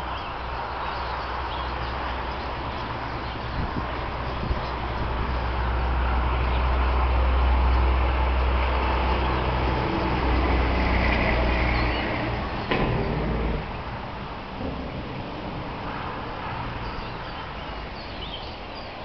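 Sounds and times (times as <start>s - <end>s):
vehicle engine rumbling: 0.0s - 19.0s
sharp knock: 12.7s - 13.6s.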